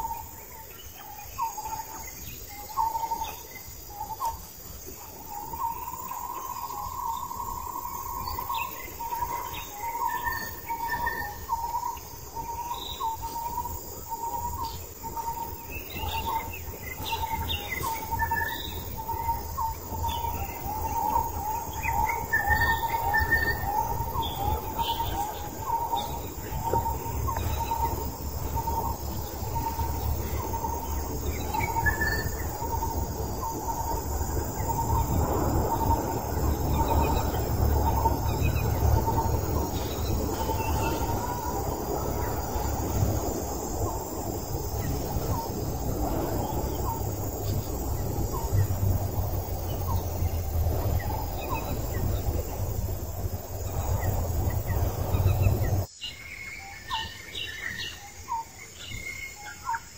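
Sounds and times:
birds chirping: 0:00.0 - 0:59.9
low rumble: 0:16.0 - 0:55.9.

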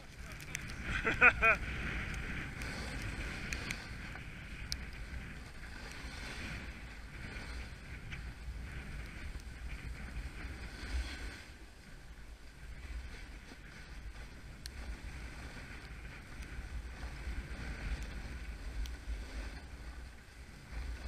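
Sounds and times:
snowboard sliding over snow: 0:00.0 - 0:21.0
wind rumbling on microphone: 0:00.0 - 0:21.0.

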